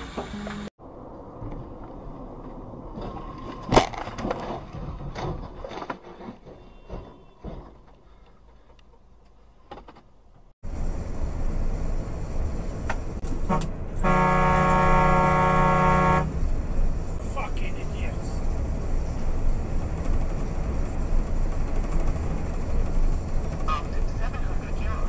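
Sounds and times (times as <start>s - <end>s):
knocks and clatter: 1.4s - 10.5s, 19.2s - 24.0s
lorry horn blast: 13.4s - 16.4s.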